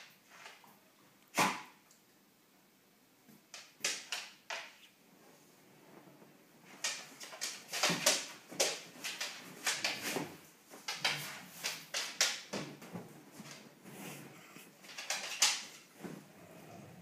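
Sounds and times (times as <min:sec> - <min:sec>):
dogs scuffling: 0:06.6 - 0:16.9.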